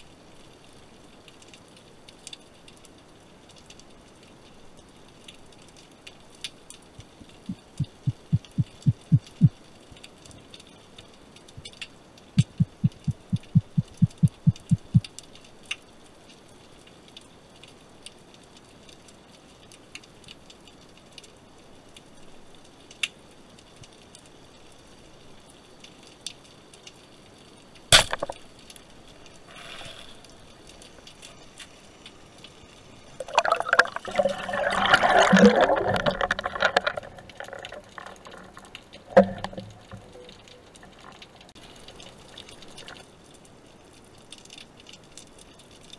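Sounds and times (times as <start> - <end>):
splashing and bubbling: 7.0 - 9.6, 12.4 - 15.1, 32.9 - 43.0
low thuds: 12.4 - 15.0
speargun firing underwater: 28.0 - 28.4.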